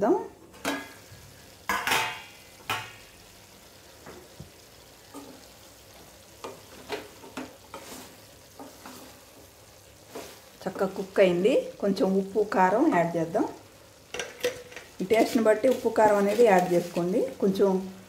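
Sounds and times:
chicken sizzling: 0.0s - 18.0s
metal spatula scraping pan: 6.4s - 9.2s
spatula clattering: 14.1s - 17.1s.

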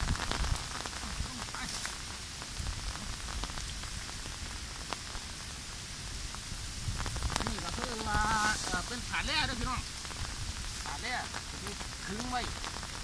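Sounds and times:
low wind rumble: 0.0s - 13.0s
rain drop ticks: 0.0s - 13.0s
rain falling: 0.0s - 13.0s
person's voice: 0.9s - 2.0s, 7.4s - 9.9s, 10.8s - 12.6s.

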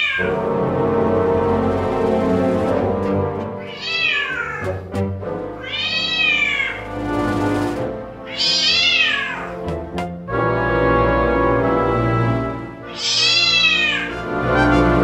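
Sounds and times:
cat meowing: 0.0s - 0.4s, 3.6s - 4.8s, 5.6s - 6.9s, 8.2s - 9.6s, 12.9s - 14.2s
background music: 0.2s - 15.0s.

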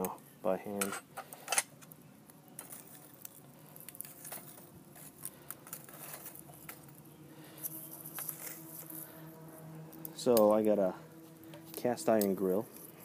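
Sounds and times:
rustling: 2.6s - 10.3s.

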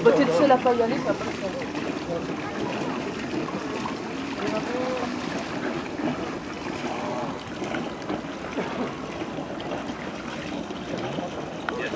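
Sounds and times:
water moving around a boat: 0.0s - 11.9s.

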